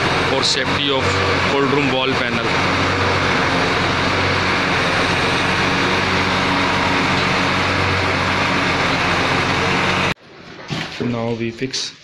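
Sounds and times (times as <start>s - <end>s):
heavy truck engine running: 0.0s - 10.2s.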